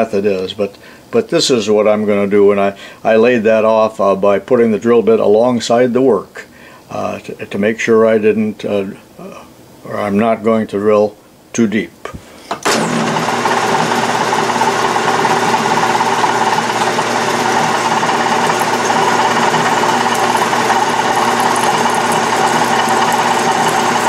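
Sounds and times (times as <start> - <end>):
drill boring into aluminium: 12.6 - 24.0
metal lathe running: 12.6 - 24.0.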